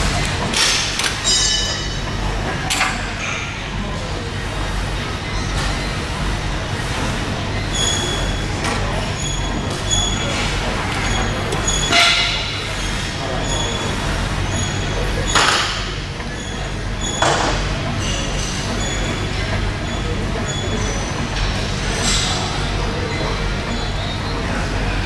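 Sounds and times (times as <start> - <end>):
exercise machine metal clanks: 0.1 - 3.5, 7.7 - 12.7.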